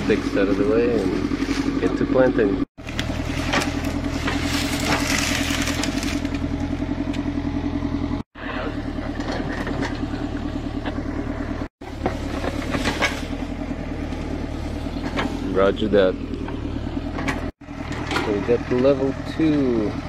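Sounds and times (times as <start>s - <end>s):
excavator diesel engine droning: 0.0s - 20.0s.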